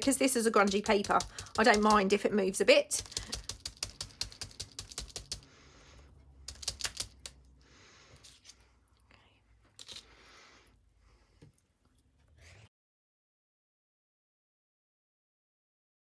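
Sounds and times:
sponge dabbing paint: 0.0s - 7.4s.

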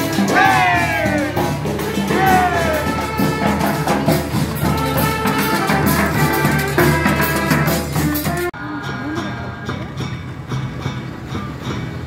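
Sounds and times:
steady drum beat: 0.0s - 8.5s
horn lines: 0.0s - 8.6s.

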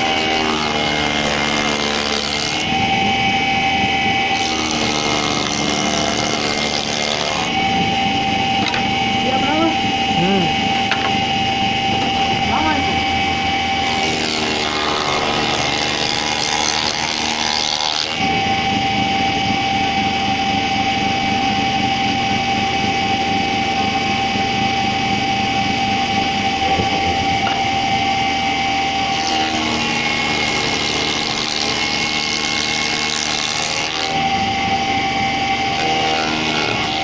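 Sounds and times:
cutter cutting wood: 0.0s - 18.8s, 29.0s - 37.0s
spindle moulder motor whine: 0.0s - 37.0s.

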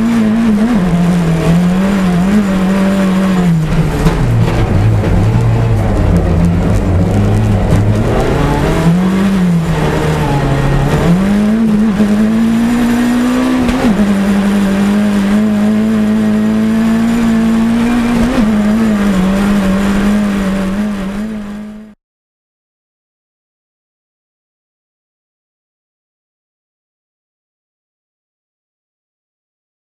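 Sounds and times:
rally car engine at high revs: 0.0s - 22.0s.

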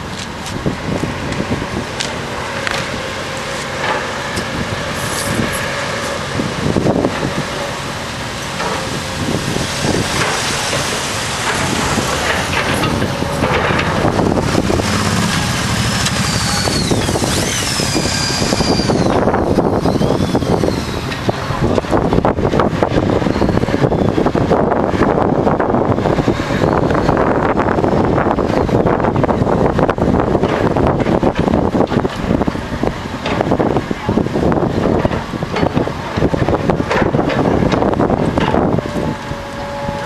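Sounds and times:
excavator diesel engine running: 0.0s - 40.0s
high wavering squeals: 9.0s - 21.9s, 23.1s - 24.4s.

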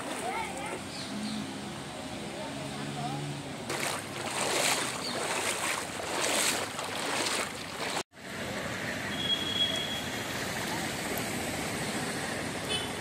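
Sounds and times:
floodwater sloshing: 0.0s - 0.8s, 3.6s - 8.1s.

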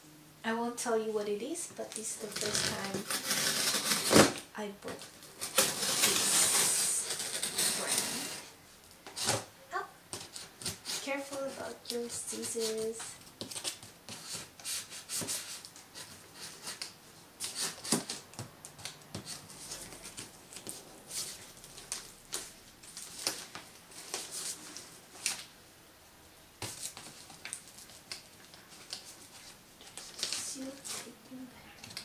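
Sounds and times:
scissors cutting cardboard: 2.3s - 4.4s, 5.4s - 8.4s, 10.1s - 21.4s.

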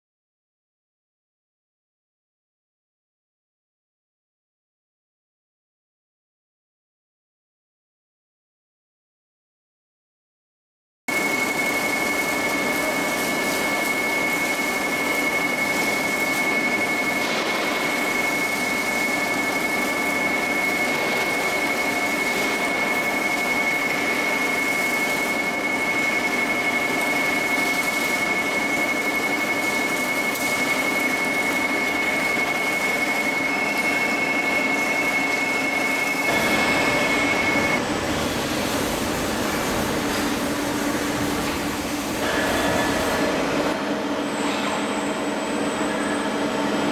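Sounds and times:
high spindle whine: 11.1s - 46.9s.

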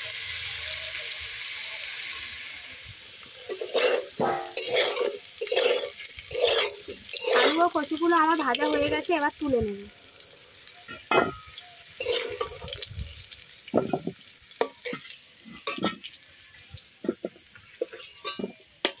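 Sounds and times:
hot oil sizzling: 0.0s - 19.0s
metal spatula scraping a wok: 3.4s - 9.0s, 12.0s - 13.3s, 14.6s - 16.2s, 17.0s - 19.0s.

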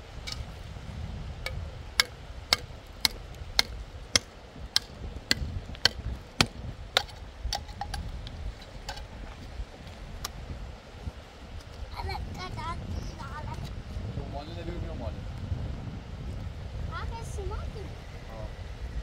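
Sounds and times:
hand tool striking concrete block: 1.5s - 8.0s.

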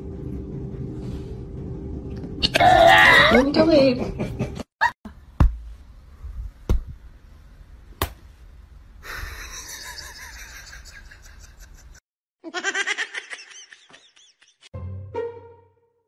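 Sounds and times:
person laughing: 9.1s - 14.7s.

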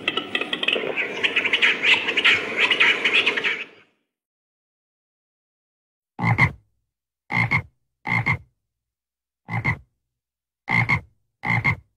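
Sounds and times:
frog croaking: 6.2s - 6.6s, 7.3s - 8.4s, 9.5s - 9.8s, 10.7s - 11.8s.

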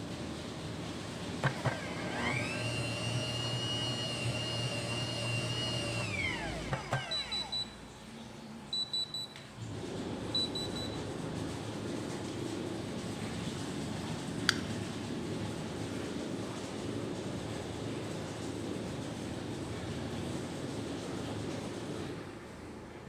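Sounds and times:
bread maker motor whining: 1.3s - 7.7s
high alarm beeps: 8.7s - 9.4s.

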